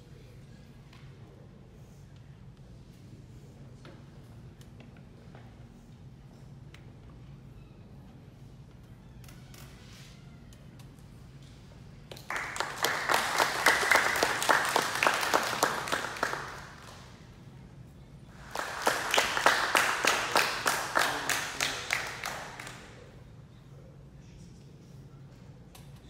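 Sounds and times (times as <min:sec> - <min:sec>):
audience applauding: 0:12.1 - 0:17.2, 0:18.3 - 0:23.0.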